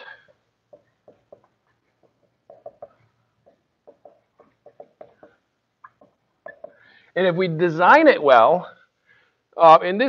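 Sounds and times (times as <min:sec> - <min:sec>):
marker squeaking on whiteboard: 0:00.0 - 0:07.0.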